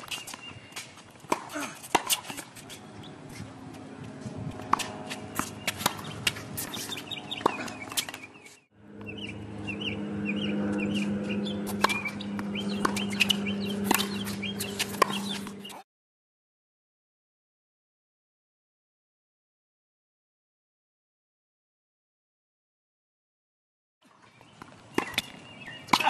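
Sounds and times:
birds chirping: 0.0s - 1.6s, 2.2s - 15.8s, 24.1s - 26.0s
tennis racquet strikes: 0.0s - 2.8s, 4.6s - 9.1s, 10.7s - 15.8s, 24.9s - 26.0s
footsteps on court: 0.0s - 9.1s
steady low hum: 2.2s - 15.8s.

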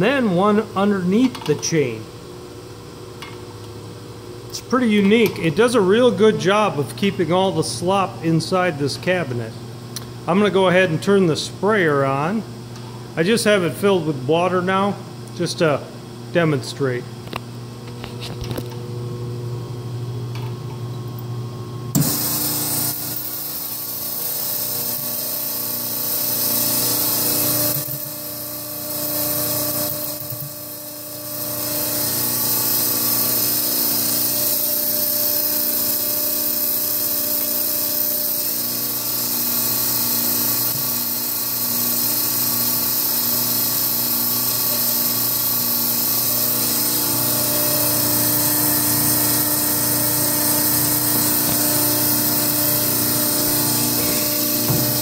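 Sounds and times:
machine humming: 0.0s - 55.0s
sprayer nozzles hissing: 35.2s - 55.0s.

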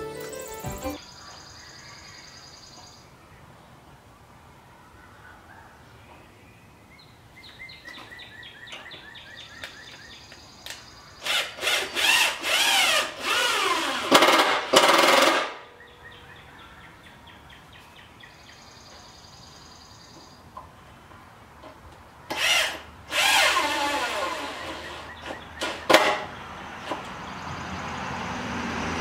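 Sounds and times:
cordless drill driving into wood: 11.2s - 15.6s, 22.3s - 26.2s.

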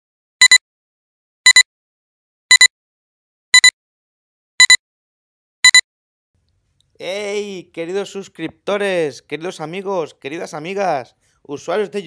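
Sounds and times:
short pitched double beeps: 2.5s - 2.7s, 4.6s - 4.8s, 5.6s - 5.8s.

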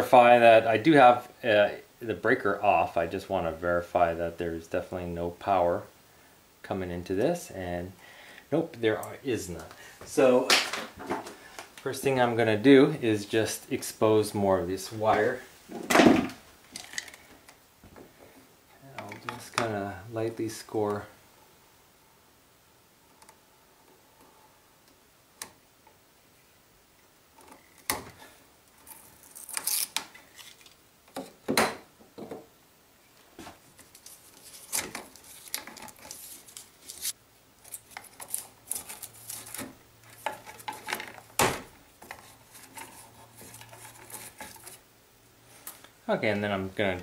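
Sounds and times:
blade scoring plastic cable sheathing: 29.0s - 30.8s, 33.9s - 40.7s
plastic jacket crinkling rustles: 33.4s - 41.4s.

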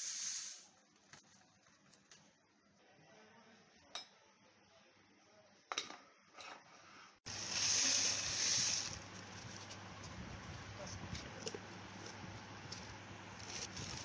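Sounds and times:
fried onions poured into jar: 7.3s - 9.3s.

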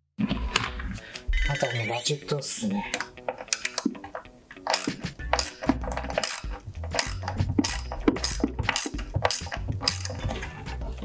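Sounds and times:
hand ratchet clicking: 2.9s - 10.5s.

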